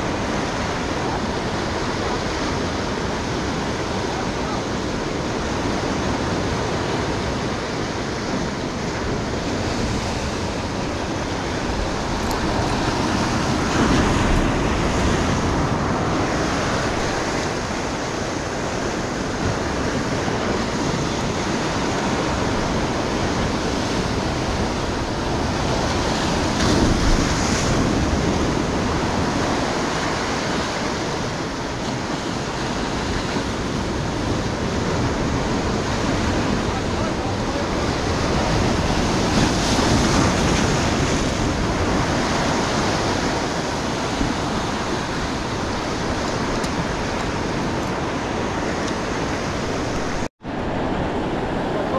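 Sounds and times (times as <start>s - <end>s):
surf breaking on rocky shore: 0.0s - 51.9s.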